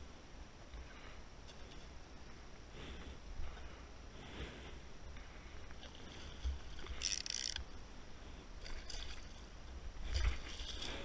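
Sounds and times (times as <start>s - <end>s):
water lapping around boat: 0.1s - 11.0s.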